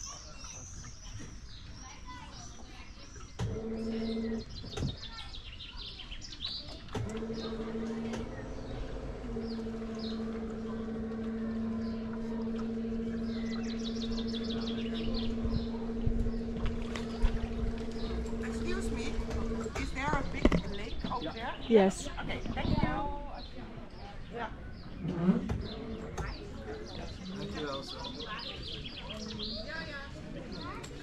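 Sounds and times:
small birds chirping: 0.0 - 31.0
low electric hum: 3.4 - 4.8, 6.0 - 23.9, 24.7 - 28.0.

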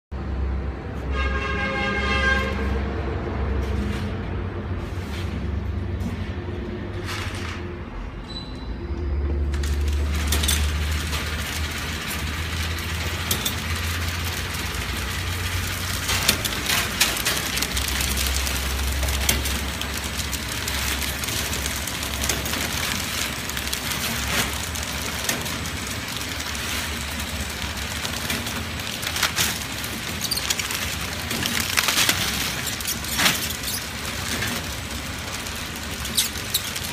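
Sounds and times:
packaging machine humming: 9.2 - 36.9
machine parts clicking and clacking: 9.4 - 36.9.

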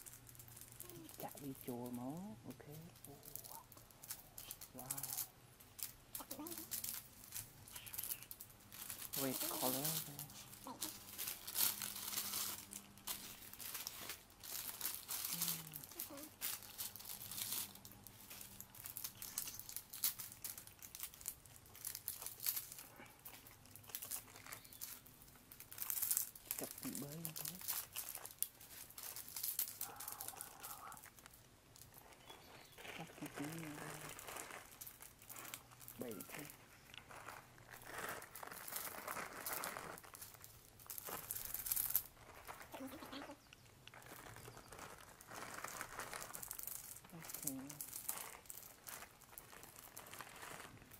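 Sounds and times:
plastic sachets crinkling and tearing: 0.0 - 50.9.

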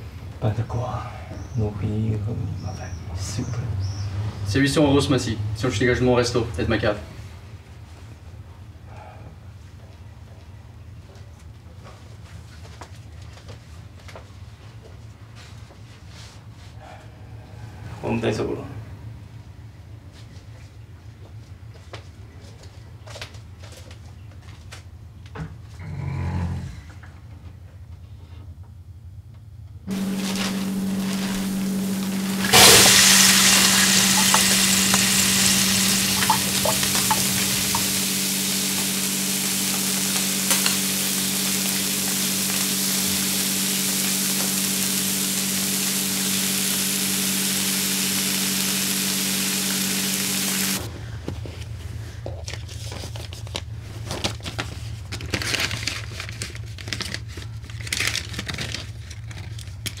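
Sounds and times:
constant hum: 27.1 - 60.0
paper banknotes rustling: 29.9 - 32.5, 52.4 - 60.0
food sizzling in hot oil: 29.9 - 50.9.

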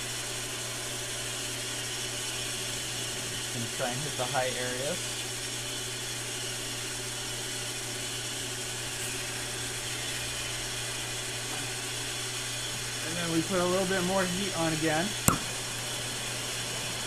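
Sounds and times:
lathe motor humming: 0.2 - 17.0.

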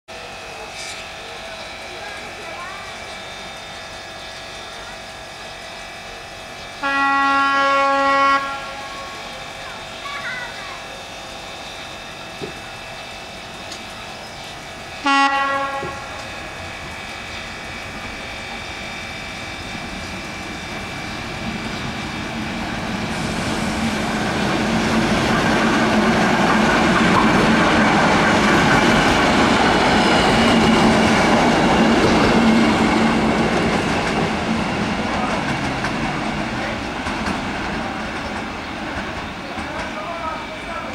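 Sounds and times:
train wheels clattering over rail joints: 31.6 - 40.2.

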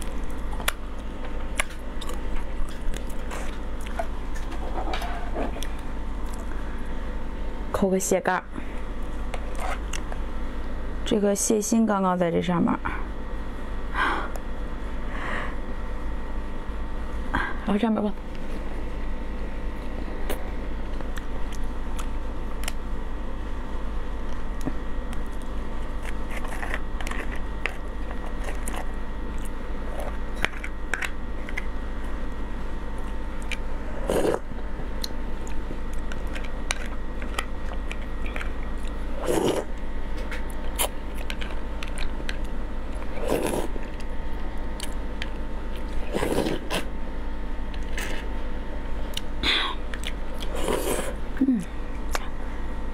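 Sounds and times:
faint electrical hum: 0.0 - 52.9
chewing and wet mouth noises: 40.4 - 44.1, 44.8 - 45.0, 49.9 - 51.2.

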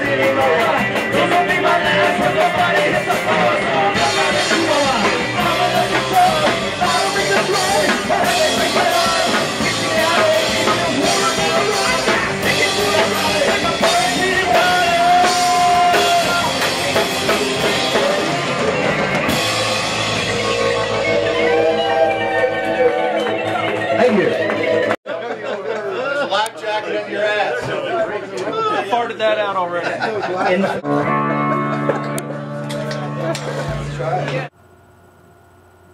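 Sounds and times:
drum kit pounding: 0.0 - 25.0, 31.1 - 34.6
live rock band: 0.0 - 25.0, 30.6 - 34.5.

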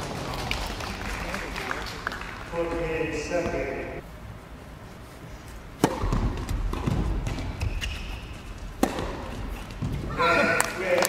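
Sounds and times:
ball bouncing: 5.8 - 10.1
racket hitting tennis ball: 5.8 - 10.7.

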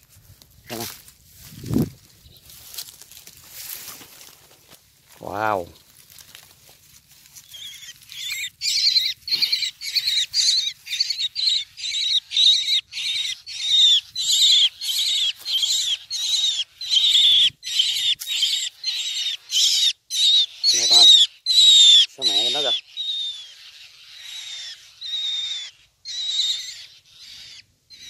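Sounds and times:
young myna calling: 7.4 - 28.0.

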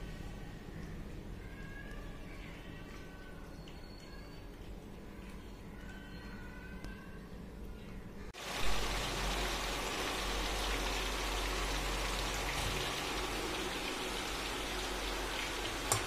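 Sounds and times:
fish sizzling in hot oil: 8.4 - 16.0.

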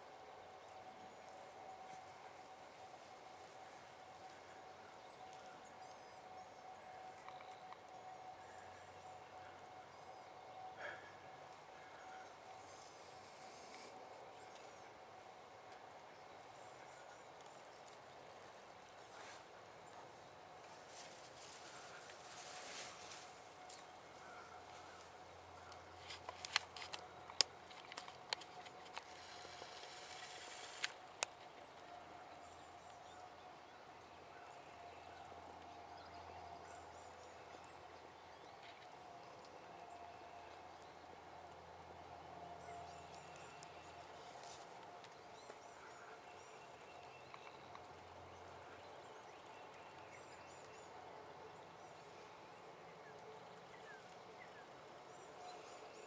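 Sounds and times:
faint steady hum: 0.0 - 56.0
light rustles of handling: 18.9 - 29.4.

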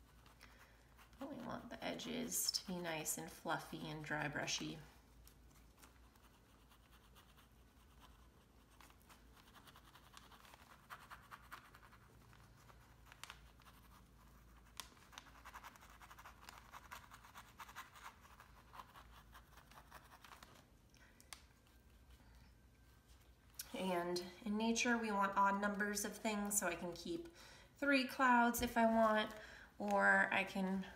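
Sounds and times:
paintbrush scrubbing: 0.0 - 4.6, 5.2 - 20.7.

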